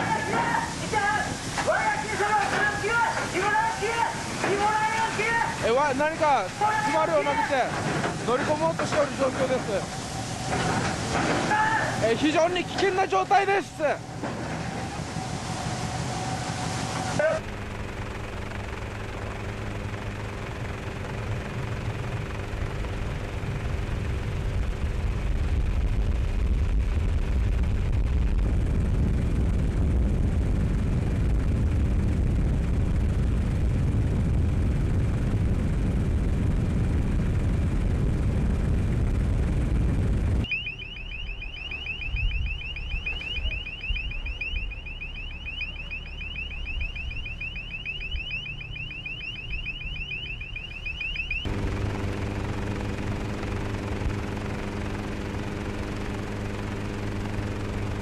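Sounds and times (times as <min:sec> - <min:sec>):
boat engine hum: 0:00.0 - 0:25.6, 0:34.5 - 0:58.0
electronic alarm chirps: 0:40.4 - 0:51.5.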